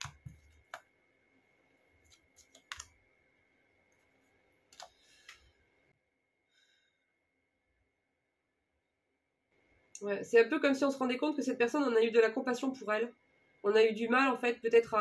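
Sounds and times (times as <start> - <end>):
cards tapping and flicking: 0.0 - 0.9, 2.1 - 3.0.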